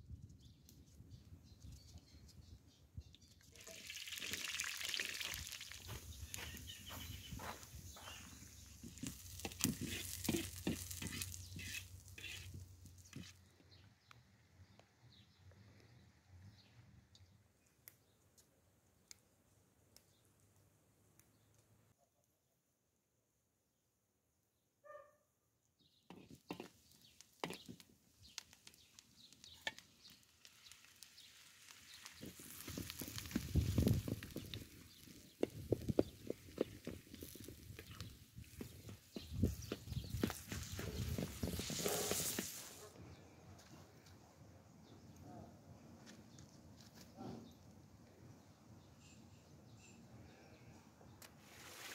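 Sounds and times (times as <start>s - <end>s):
onions sizzling in a wok: 3.6s - 13.3s, 26.1s - 38.7s, 39.3s - 42.9s, 51.4s - 51.9s
metal spatula scraping wok: 9.0s - 13.3s, 26.1s - 26.7s.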